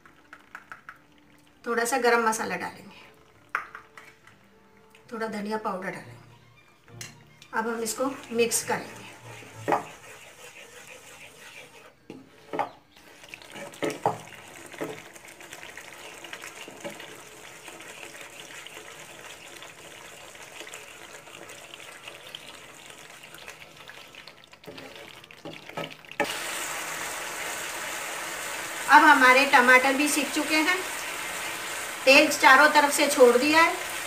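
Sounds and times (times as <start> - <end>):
masala sizzling in oil: 6.5 - 34.0
wooden spatula scraping pan: 7.9 - 14.1.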